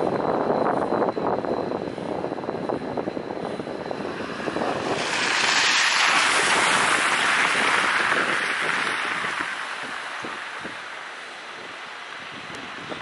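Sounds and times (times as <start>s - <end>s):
vehicle passing on wet street: 3.9s - 12.8s.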